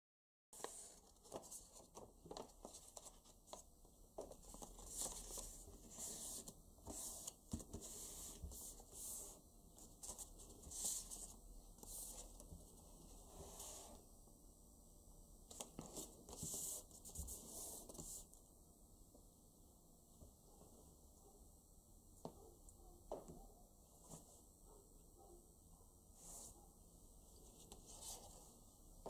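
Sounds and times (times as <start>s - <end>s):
paper rustling and creasing: 0.6s - 9.0s.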